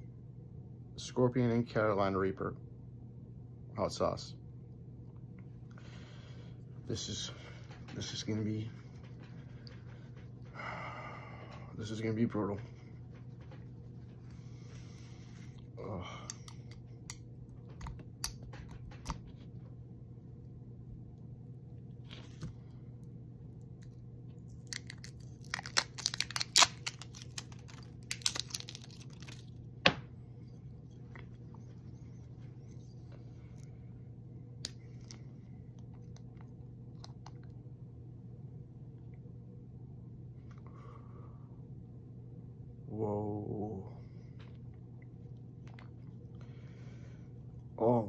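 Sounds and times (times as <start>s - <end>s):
steady low hum: 0.0s - 48.0s
plastic seal crinkling and tearing: 24.5s - 29.6s.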